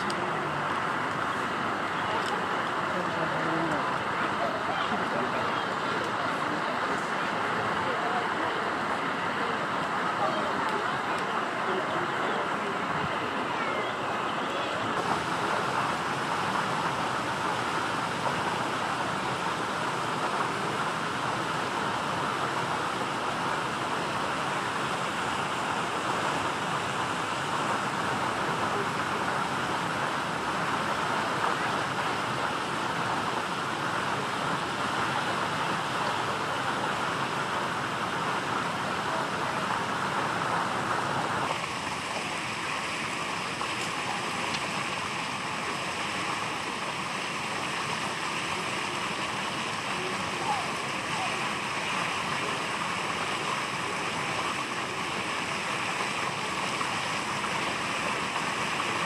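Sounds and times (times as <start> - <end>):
steady rushing noise: 0.0 - 59.0.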